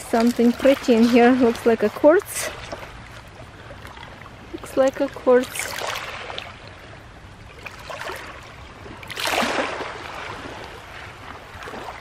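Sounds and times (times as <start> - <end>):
water lapping on pebble shore: 0.0 - 6.6, 9.0 - 12.0.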